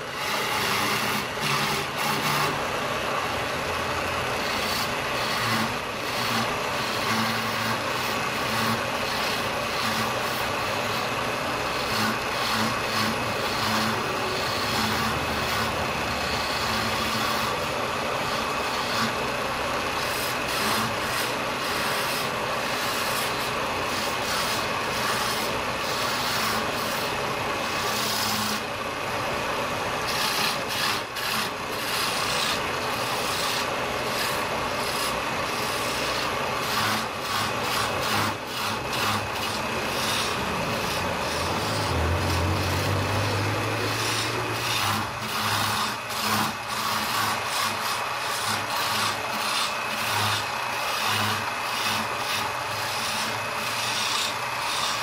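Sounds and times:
chisel scraping spinning wood: 0:00.0 - 0:55.0
lathe motor humming: 0:00.0 - 0:55.0.

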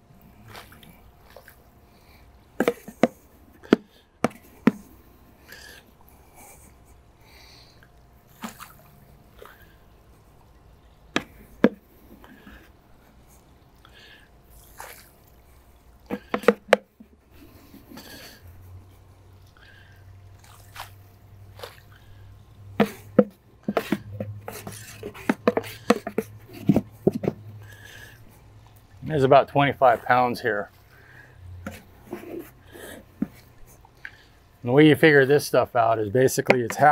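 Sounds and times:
low steady hum: 0:00.0 - 0:36.9
small splashes in water: 0:08.3 - 0:09.8, 0:19.8 - 0:22.0.

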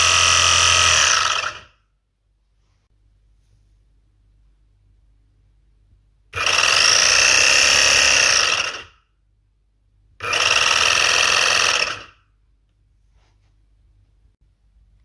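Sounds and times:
motor whining: 0:00.0 - 0:01.7.

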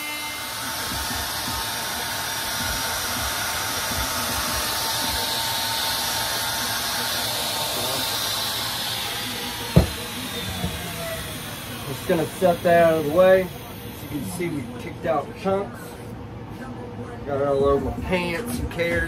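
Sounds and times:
router motor whining: 0:00.0 - 0:15.1
sharp knock: 0:09.8 - 0:10.8.

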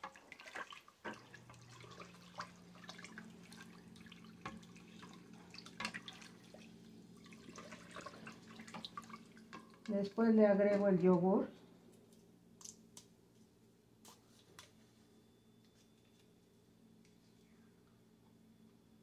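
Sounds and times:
milk sloshing: 0:00.0 - 0:09.8
faint low hum: 0:01.1 - 0:19.0.

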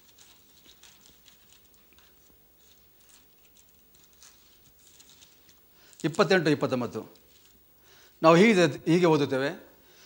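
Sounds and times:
paper pages rustling: 0:00.0 - 0:06.2, 0:07.1 - 0:07.6.

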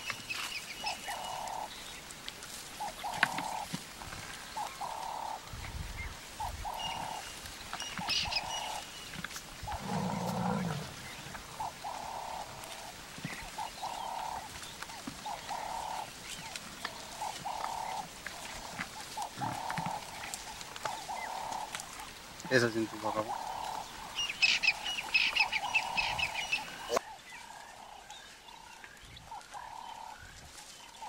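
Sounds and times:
long low animal call: 0:09.6 - 0:14.6.

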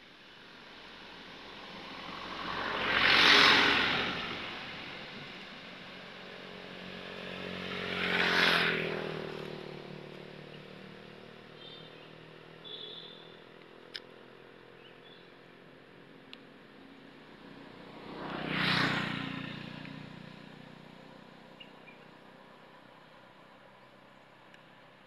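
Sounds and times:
vehicle passing by: 0:01.3 - 0:12.6, 0:17.0 - 0:24.0.

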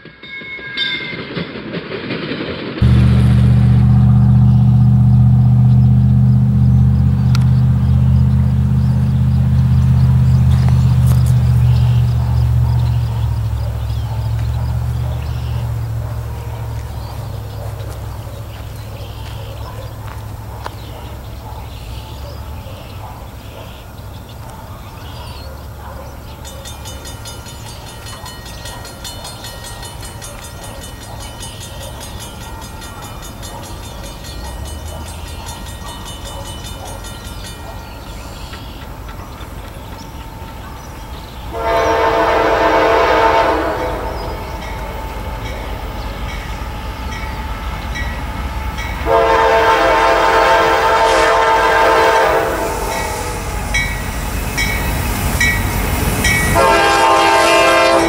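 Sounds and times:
diesel locomotive rumble: 0:02.0 - 0:58.0
train horn blasts: 0:02.8 - 0:18.8, 0:41.4 - 0:45.6, 0:47.1 - 0:54.8, 0:55.5 - 0:58.0.

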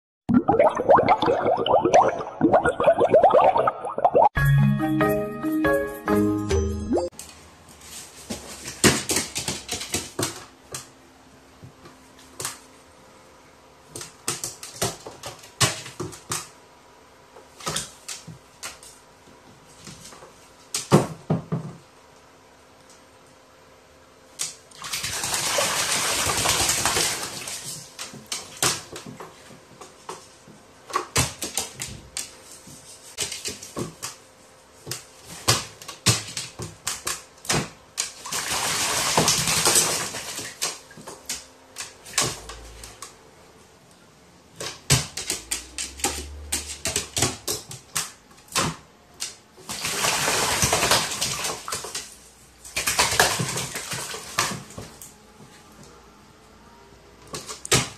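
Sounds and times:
water dripping: 0:00.3 - 0:04.3
bird wings splashing water: 0:24.7 - 0:27.8, 0:49.7 - 0:52.0.

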